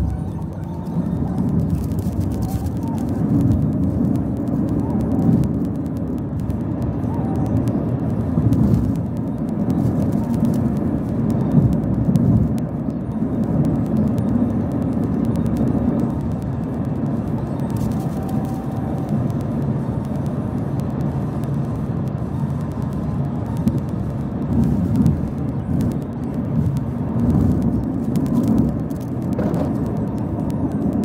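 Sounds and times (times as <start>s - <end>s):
car road and engine rumble: 0.0s - 31.0s
faint clicks: 0.0s - 31.0s.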